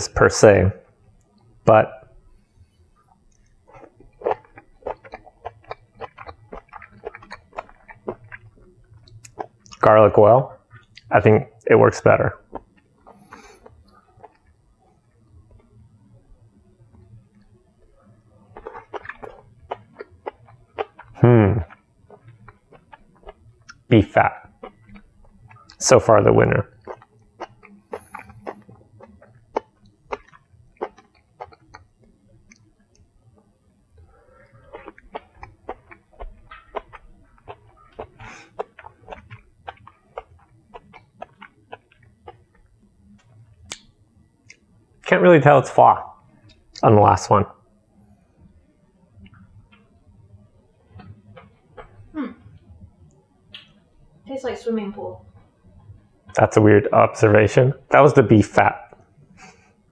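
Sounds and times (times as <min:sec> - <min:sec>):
chewing crunches and mouth clicks: 0:03.0 - 0:09.9, 0:10.7 - 0:11.1, 0:12.3 - 0:44.7, 0:49.2 - 0:50.2, 0:50.8 - 0:53.8, 0:58.8 - 0:59.6.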